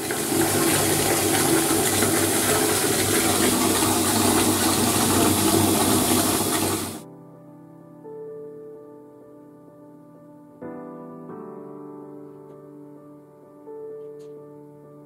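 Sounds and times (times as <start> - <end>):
tap running into bathtub: 0.0 - 7.0.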